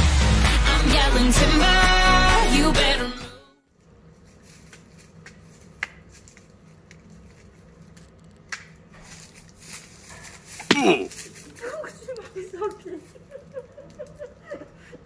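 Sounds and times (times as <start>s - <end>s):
music: 0.0s - 3.6s
background hum: 0.2s - 15.0s.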